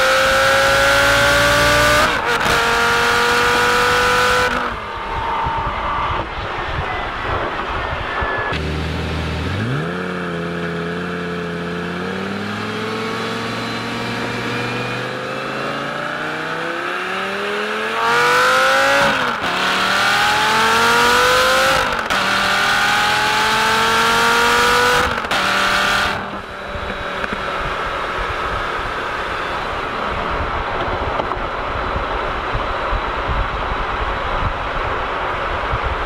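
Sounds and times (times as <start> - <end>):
sports car engine accelerating: 0.0 - 5.3, 8.2 - 32.6.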